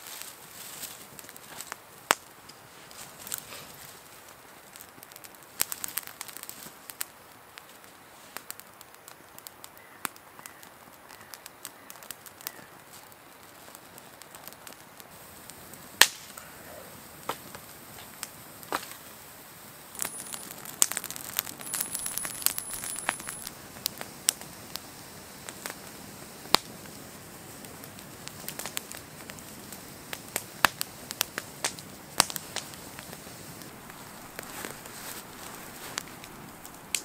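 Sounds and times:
campfire crackling: 0:00.0 - 0:37.0.

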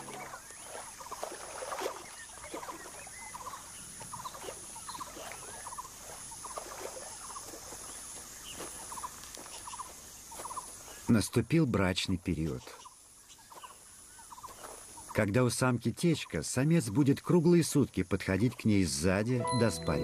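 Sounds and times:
insect buzz: 0:00.0 - 0:11.2, 0:12.3 - 0:15.4.

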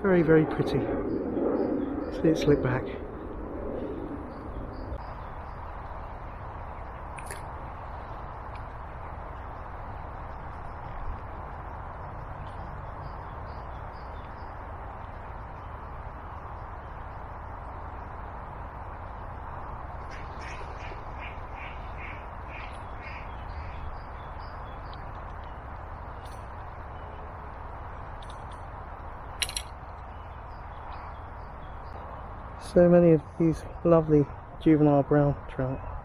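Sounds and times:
bird calling: 0:20.0 - 0:25.6.

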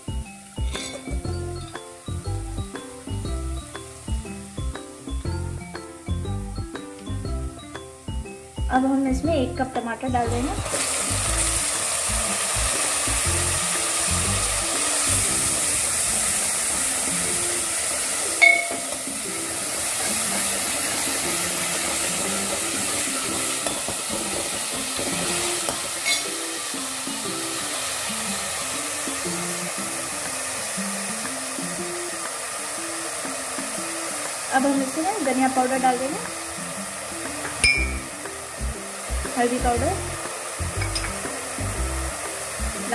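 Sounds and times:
tomatoes sizzling in hot oil: 0:00.0 - 0:42.9
ladle clinking against pan: 0:00.6 - 0:01.1, 0:18.4 - 0:19.0, 0:26.0 - 0:26.3, 0:40.8 - 0:41.2.

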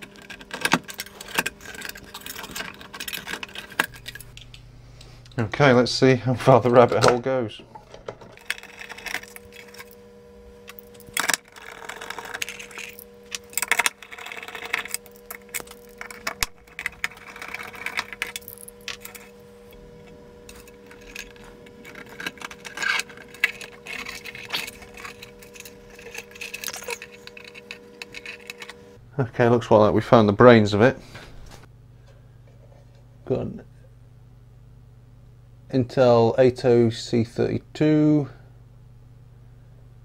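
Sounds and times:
faint steady hum: 0:00.0 - 0:40.0
clicks and rustles of handling: 0:10.6 - 0:28.9.

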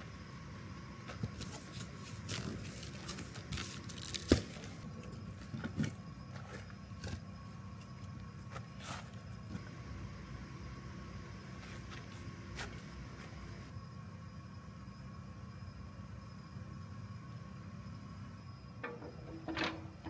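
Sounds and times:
faint steady hum: 0:00.0 - 0:20.0
rustling and crunching of materials: 0:01.1 - 0:07.2.

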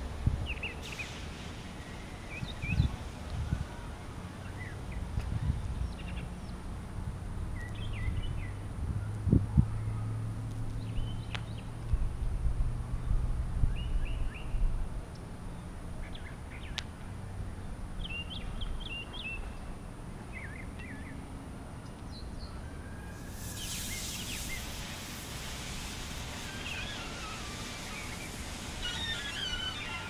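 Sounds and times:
battery venting hiss: 0:23.3 - 0:30.0
small birds chirping: 0:26.4 - 0:30.0.

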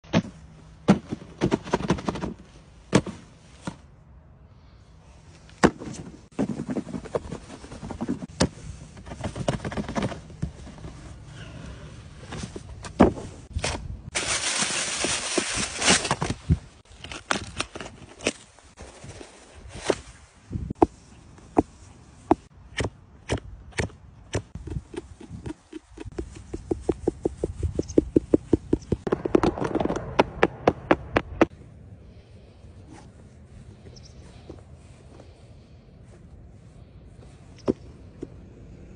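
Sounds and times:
boots being handled: 0:24.6 - 0:29.8.

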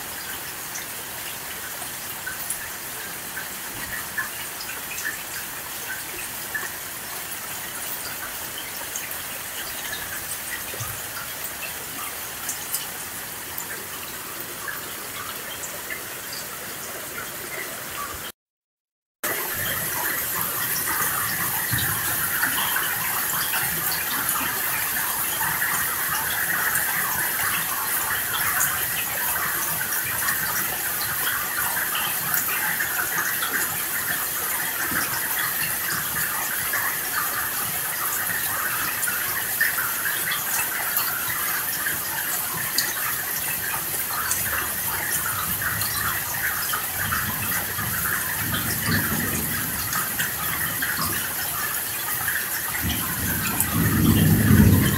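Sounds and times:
heavy rain: 0:00.0 - 0:18.4, 0:19.2 - 0:54.9
low rumble of thunder: 0:47.1 - 0:51.3, 0:52.8 - 0:54.9.

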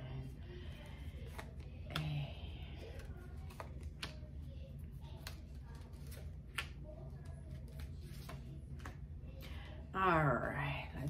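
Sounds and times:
low steady hum: 0:00.0 - 0:11.0
cards clicking and snapping: 0:01.2 - 0:02.2, 0:02.8 - 0:04.3, 0:05.1 - 0:09.0.

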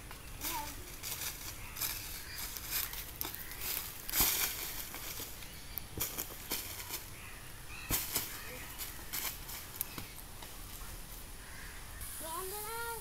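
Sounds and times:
football on dry leaves: 0:00.0 - 0:13.0
footsteps on dry leaves: 0:00.3 - 0:10.7
child calling out: 0:12.2 - 0:13.0.

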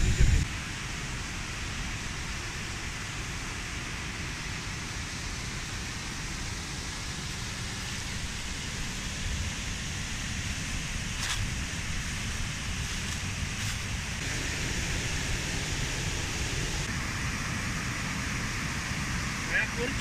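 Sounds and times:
waterfall rushing: 0:14.2 - 0:16.9.

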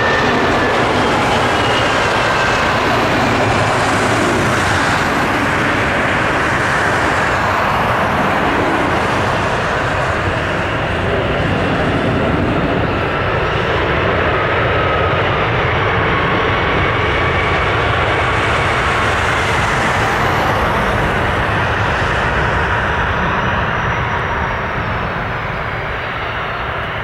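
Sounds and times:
jet engines rushing with whine: 0:00.0 - 0:27.0.

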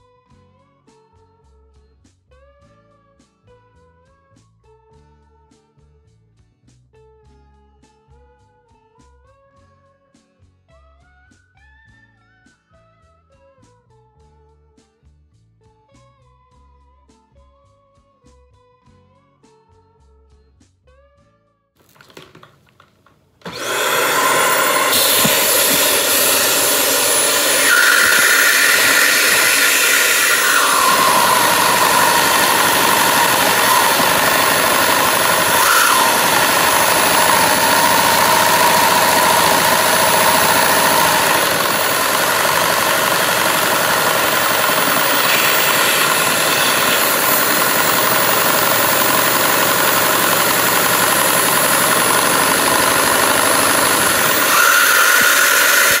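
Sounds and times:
handheld vacuum cleaner motor whine: 0:22.0 - 0:56.0.

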